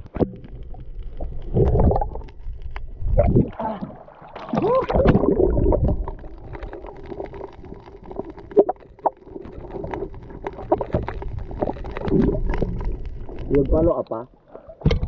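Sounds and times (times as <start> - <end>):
underwater clicks and crackles: 0.0 - 15.0
water churning and gurgling: 0.0 - 15.0.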